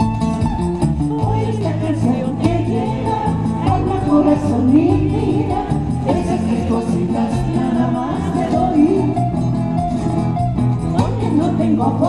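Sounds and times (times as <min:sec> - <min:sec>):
acoustic guitars: 0:00.0 - 0:12.0
woman singing into a microphone: 0:01.1 - 0:09.4, 0:10.9 - 0:12.0.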